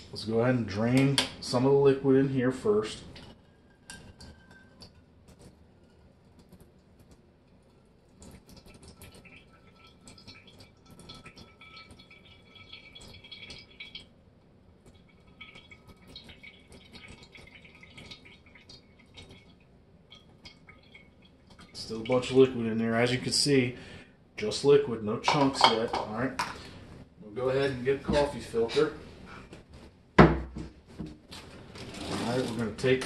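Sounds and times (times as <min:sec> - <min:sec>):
liquid dripping into bowl: 0:06.3 - 0:22.6.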